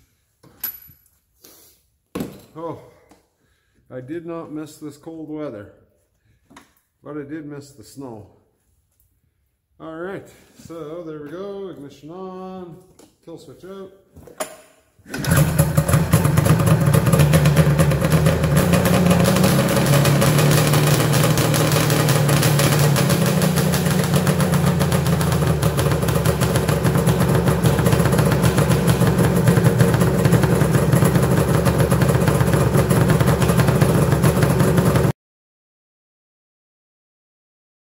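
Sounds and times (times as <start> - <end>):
snowmobile engine idling: 15.2 - 35.1.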